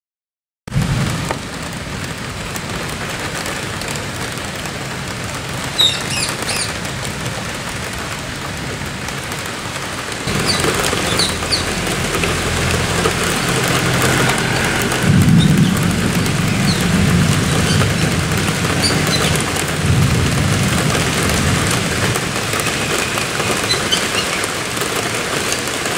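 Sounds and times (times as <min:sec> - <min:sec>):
steady rain: 0:00.7 - 0:25.9
thunder rumbling: 0:00.7 - 0:25.9
high bird chirps: 0:05.8 - 0:06.8, 0:10.3 - 0:19.6, 0:22.6 - 0:24.5.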